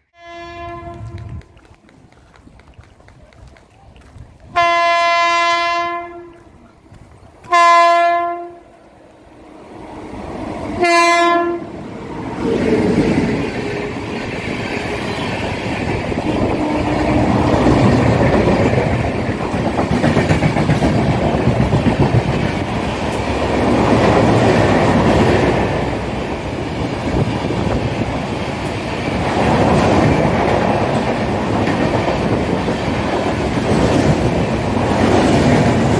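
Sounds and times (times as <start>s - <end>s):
electric locomotive horn blasts: 0.0s - 1.6s, 4.6s - 6.5s, 7.5s - 8.7s, 10.8s - 11.7s, 16.2s - 17.7s
train wheels rumbling on rail: 0.5s - 8.5s, 9.3s - 35.9s.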